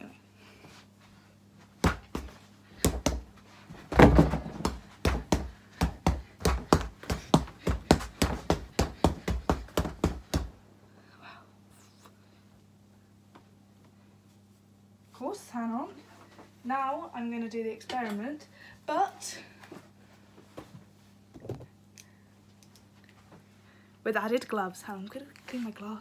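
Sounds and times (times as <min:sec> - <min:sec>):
fists punching a punch bag: 0:01.8 - 0:03.2, 0:03.9 - 0:10.5.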